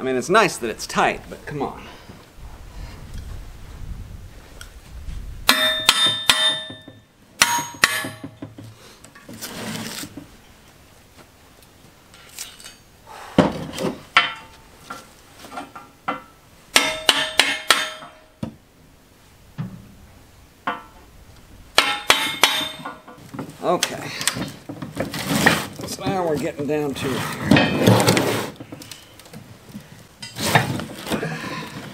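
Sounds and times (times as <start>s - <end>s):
hammer striking steel: 5.5s - 8.4s, 16.2s - 18.3s, 21.8s - 23.1s.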